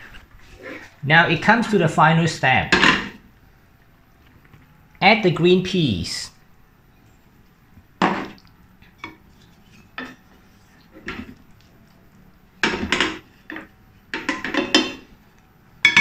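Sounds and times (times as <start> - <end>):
wooden spatula knocking on pan: 12.6 - 15.0.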